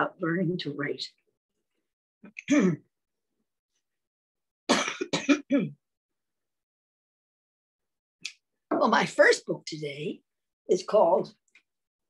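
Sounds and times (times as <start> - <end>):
woman clearing her throat: 2.4 - 2.9, 4.7 - 5.8.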